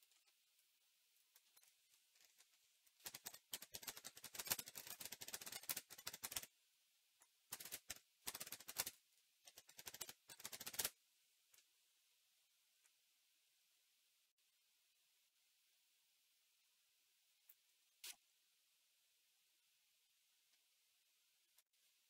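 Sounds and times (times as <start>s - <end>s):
faint keyboard typing: 1.3s - 6.5s, 7.2s - 11.7s.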